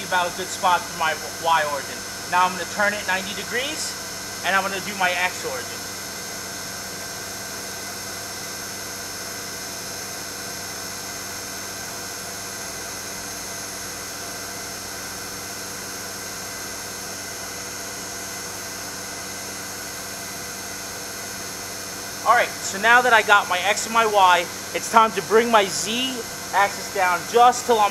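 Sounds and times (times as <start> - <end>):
vacuum pump running: 0.0 - 27.9.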